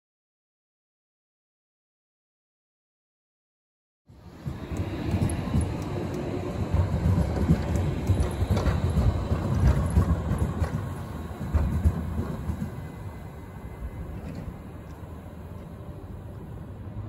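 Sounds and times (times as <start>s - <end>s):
tram rumbling: 4.1s - 17.0s
wheels clattering on rails: 4.2s - 16.5s.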